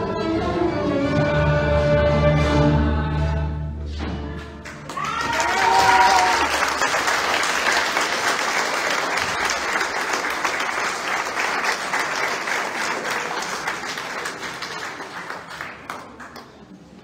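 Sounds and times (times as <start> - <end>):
audience applauding: 4.6 - 16.8.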